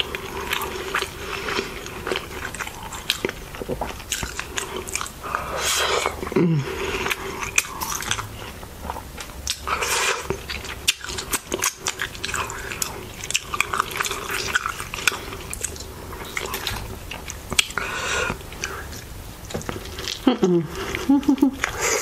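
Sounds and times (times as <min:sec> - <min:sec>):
chewing with wet mouth clicks: 0:00.0 - 0:06.4, 0:07.0 - 0:20.3.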